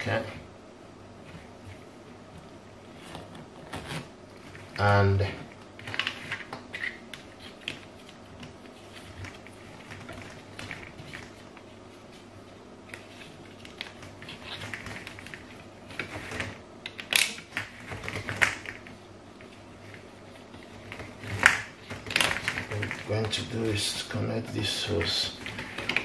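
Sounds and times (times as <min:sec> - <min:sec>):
plastic hoses clicking and creaking: 0:20.7 - 0:23.5.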